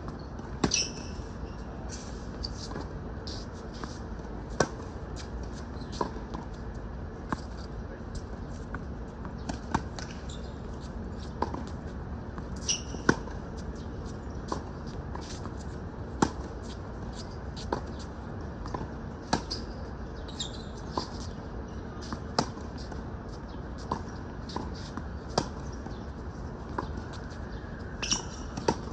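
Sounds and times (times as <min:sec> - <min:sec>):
racket hitting tennis ball: 0:28.0 - 0:28.9.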